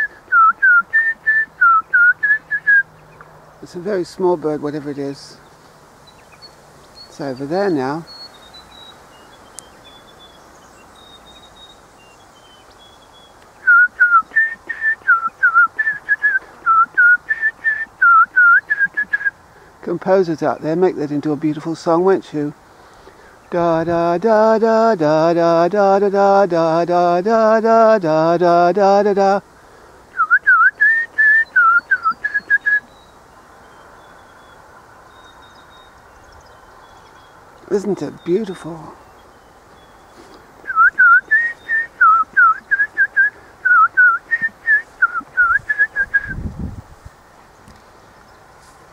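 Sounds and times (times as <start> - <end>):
person whistling birdsong: 0.0 - 2.9, 11.0 - 19.4, 30.1 - 33.1, 39.8 - 46.5
songbird high notes: 30.2 - 46.4.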